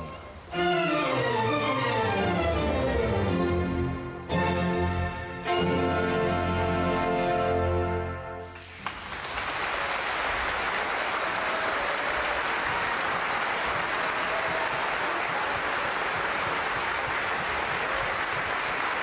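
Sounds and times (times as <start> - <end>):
audience applauding: 8.6 - 19.0.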